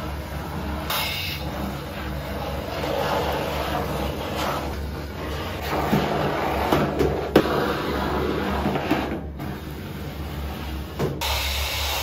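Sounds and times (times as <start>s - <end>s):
steam cleaner hissing: 0.0s - 4.7s, 11.2s - 12.0s
brush scrubbing sink: 0.0s - 10.9s.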